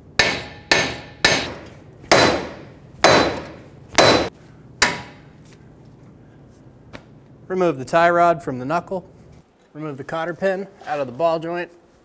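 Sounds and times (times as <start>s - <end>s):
hammer striking metal: 0.2s - 5.2s.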